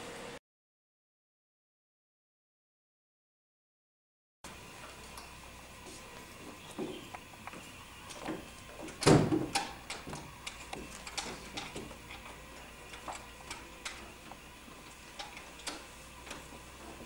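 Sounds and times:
lock and handle clicking and rattling: 8.2 - 14.3, 15.0 - 16.5.

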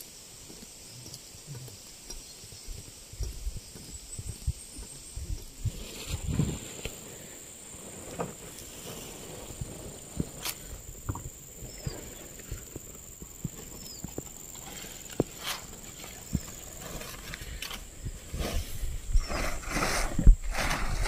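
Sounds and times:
footsteps on dirt: 0.0 - 19.8
high insect drone: 0.0 - 21.0
rustling and crunching through vegetation: 0.0 - 21.0.

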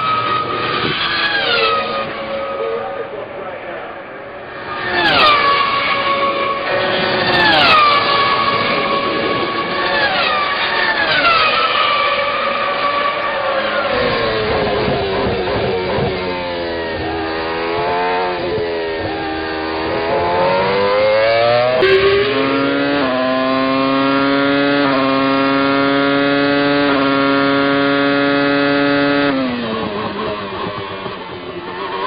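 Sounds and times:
racing car engine screaming: 4.4 - 24.9.

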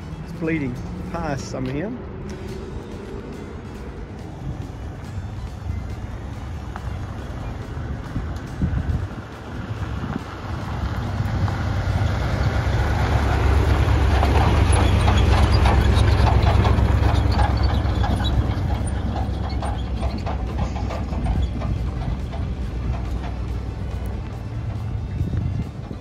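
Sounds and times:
truck engine rumbling: 0.0 - 26.0
rattling clanks and clicks: 13.4 - 26.0.

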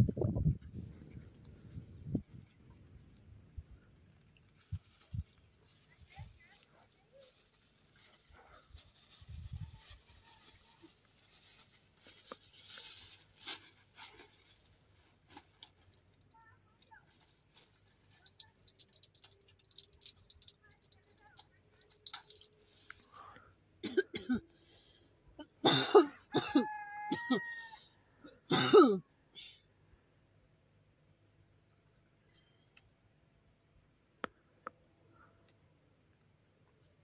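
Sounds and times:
faint rustling: 4.1 - 23.5
person coughing: 23.8 - 24.4, 25.5 - 27.4, 28.5 - 29.0.

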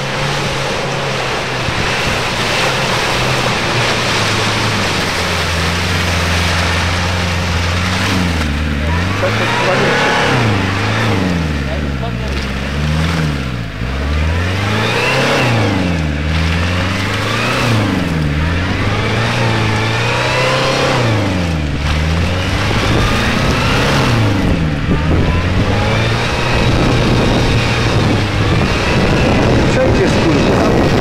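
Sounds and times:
car engine revving: 0.0 - 31.0
wheels churning mud: 0.0 - 31.0.

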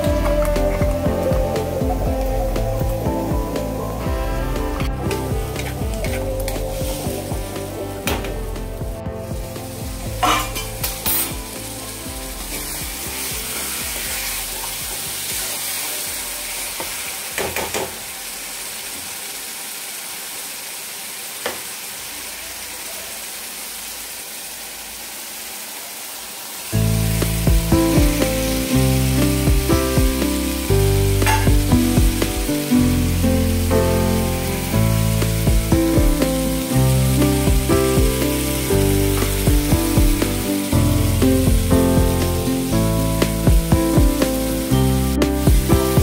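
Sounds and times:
loud background music: 0.0 - 16.3, 26.8 - 46.0
spices sizzling in a pan: 0.0 - 46.0.

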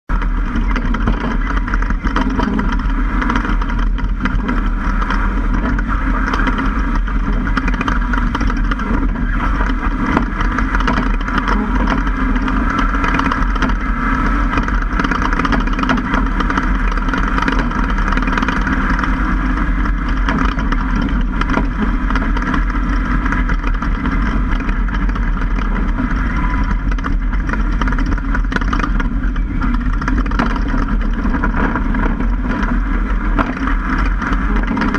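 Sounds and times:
truck engine: 0.0 - 34.9
wind: 0.0 - 34.9
tyres on dirt: 0.1 - 34.9.

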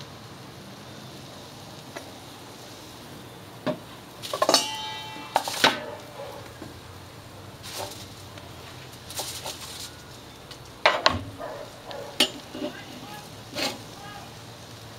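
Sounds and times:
sharp metal clanks: 4.2 - 6.0, 12.2 - 12.8
short metallic ringing tone: 4.5 - 5.6.

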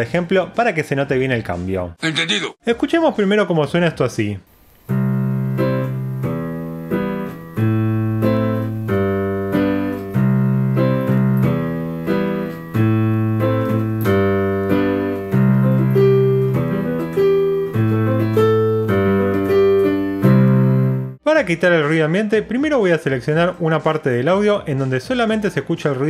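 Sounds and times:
background noise hiss: 1.4 - 23.2
piano chords: 4.6 - 21.2.

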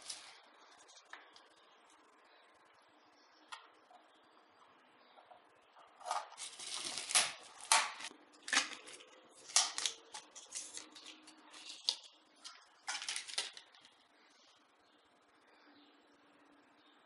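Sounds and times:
plastic packaging crackling: 0.0 - 1.5, 6.0 - 14.0.

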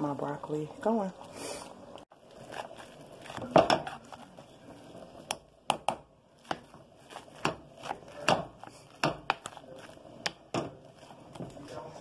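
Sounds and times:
potato masher knocking metal pot: 5.3 - 9.6, 10.2 - 11.6.

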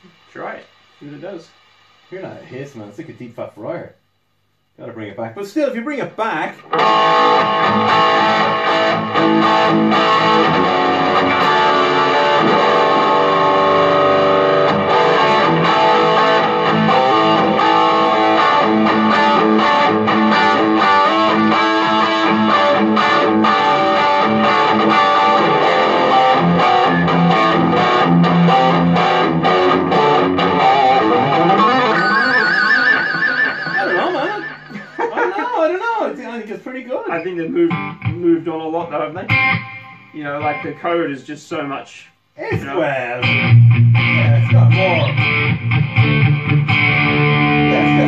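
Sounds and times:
distorted electric guitar: 6.5 - 35.5, 37.1 - 40.8, 42.5 - 48.0.

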